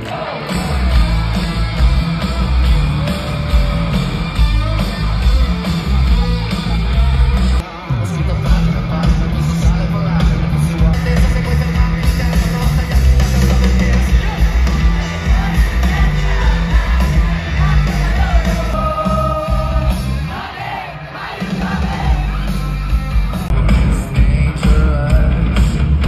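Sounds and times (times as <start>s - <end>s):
crowd yelling: 0.0s - 24.2s
live rock band playing: 0.0s - 26.0s
person singing: 23.4s - 25.7s.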